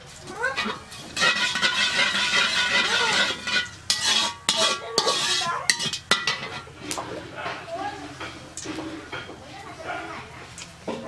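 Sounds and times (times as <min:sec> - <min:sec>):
metal spatula scraping a pan: 0:00.4 - 0:07.0.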